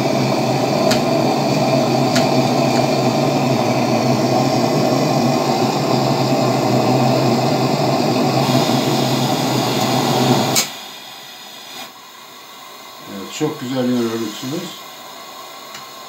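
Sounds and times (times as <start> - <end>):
burner rushing: 0.0 - 12.0
lantern hissing: 0.0 - 16.0.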